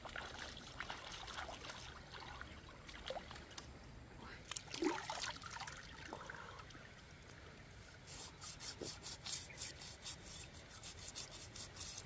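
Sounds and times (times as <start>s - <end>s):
knife scraping fish scales: 8.0s - 12.0s.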